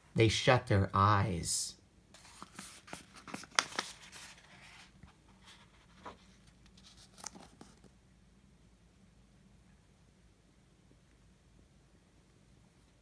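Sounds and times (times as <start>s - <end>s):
paper page rustling: 2.2s - 8.0s.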